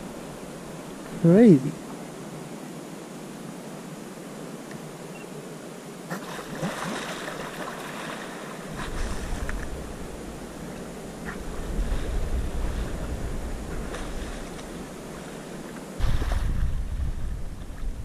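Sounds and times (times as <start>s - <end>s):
water splashing around kayak: 6.0s - 18.0s
wind rumbling on microphone: 6.3s - 18.0s.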